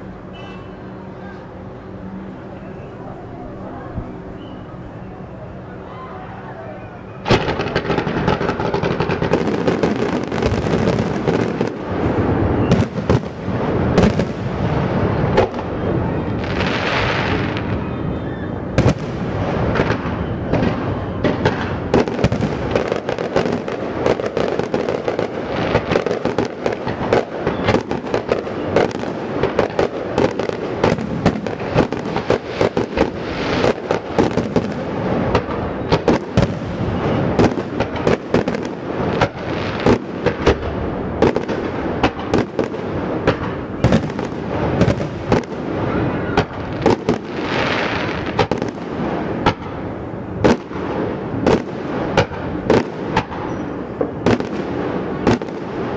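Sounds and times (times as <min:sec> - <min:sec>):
fireworks crackling and banging: 0:00.0 - 0:55.9.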